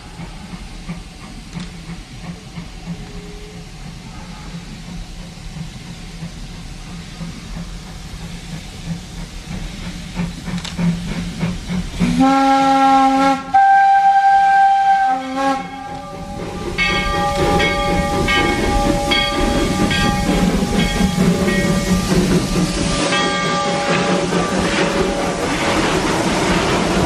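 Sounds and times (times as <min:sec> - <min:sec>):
steam hissing: 0:00.0 - 0:27.0
steam locomotive chuffing: 0:00.0 - 0:27.0
steam whistle blowing: 0:12.0 - 0:16.6
locomotive bell ringing: 0:15.6 - 0:25.8.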